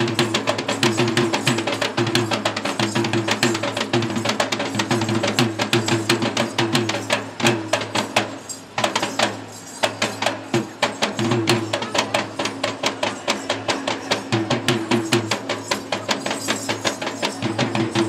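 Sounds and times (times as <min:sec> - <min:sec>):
hand drum played fast: 0:00.0 - 0:18.0.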